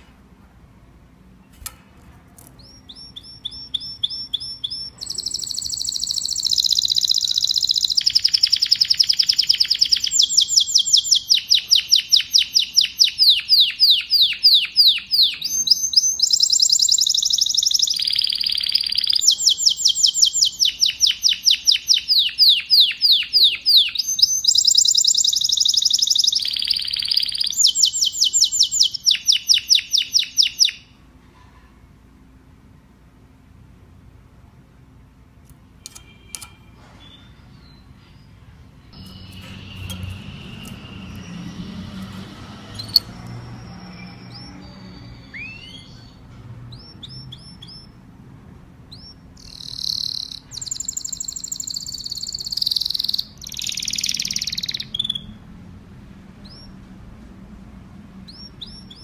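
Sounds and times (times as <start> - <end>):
canary singing trills: 2.5 - 31.0, 35.8 - 48.2, 48.8 - 55.6, 56.4 - 56.8, 58.2 - 59.0.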